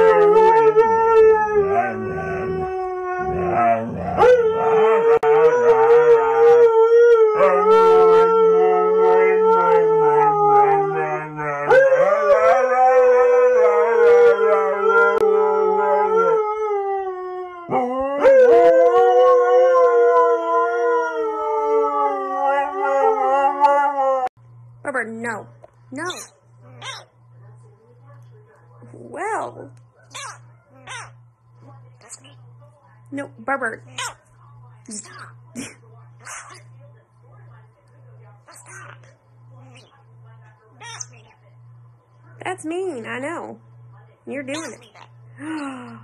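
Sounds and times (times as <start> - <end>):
huskies howling: 0.0 - 24.3.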